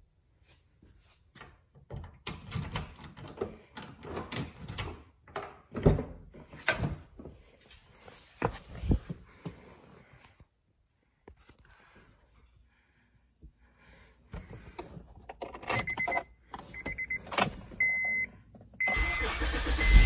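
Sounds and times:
key scraping in car door lock: 15.3s - 16.2s.

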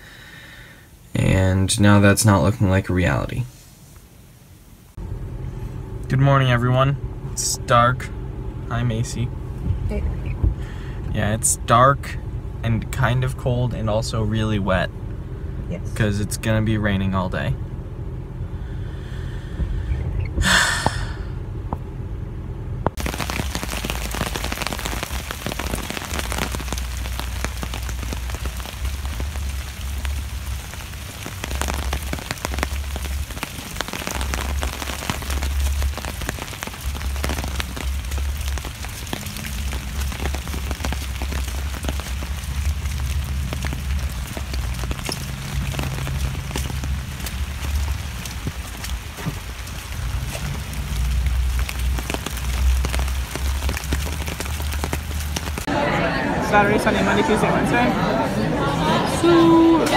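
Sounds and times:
rain patter: 0.0s - 21.9s, 22.7s - 59.9s
low rumble on microphone: 5.0s - 55.7s.

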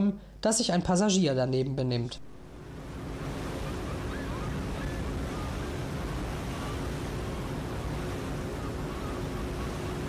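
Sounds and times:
low hum: 2.2s - 10.0s
wind and open sea rushing: 2.2s - 10.0s.

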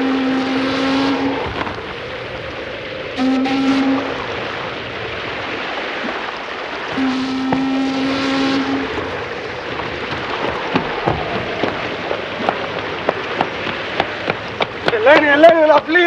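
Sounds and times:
ship's horn blast: 0.0s - 2.1s, 3.0s - 5.7s, 6.8s - 10.7s
sea and wind hiss: 0.0s - 16.0s.

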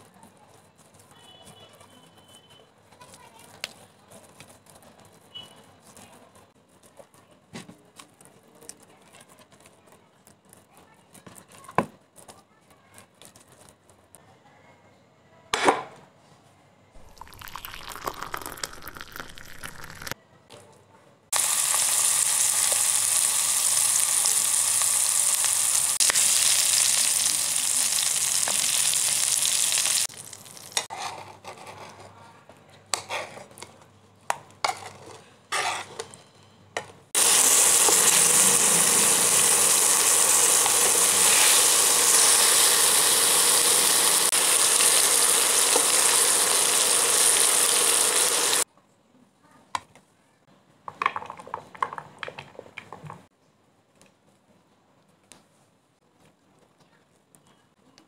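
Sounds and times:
fish sizzling in hot oil: 17.0s - 20.2s, 21.3s - 30.9s, 37.2s - 48.6s.

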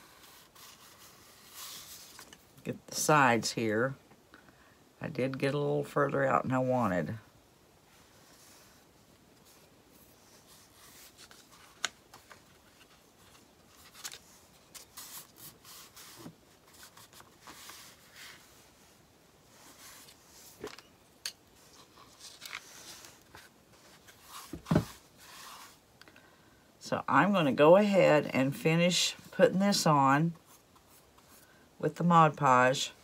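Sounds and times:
rustling and rubbing on paper: 0.0s - 2.4s, 7.9s - 20.7s, 21.6s - 25.9s, 30.3s - 31.6s.

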